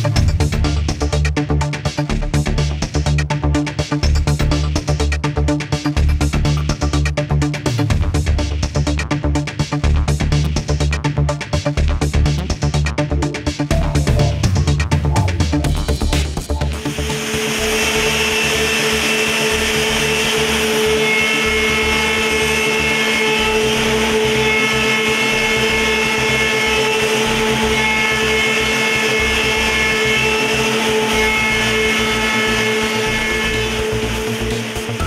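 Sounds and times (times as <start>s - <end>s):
cutters high-pitched tones: 16.8s - 35.0s
woodworking machine whining: 16.8s - 35.0s.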